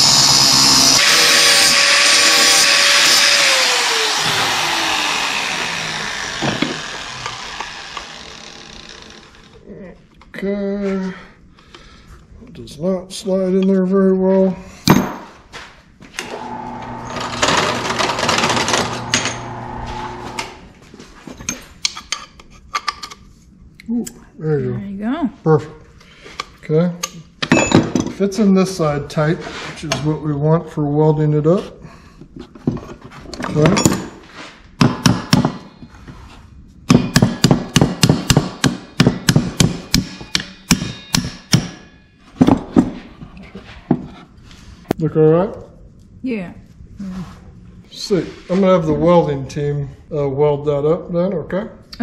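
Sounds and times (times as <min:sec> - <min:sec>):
electric grinder grinding metal: 0:00.0 - 0:09.5, 0:16.2 - 0:20.7
hammer striking steel: 0:36.9 - 0:42.0.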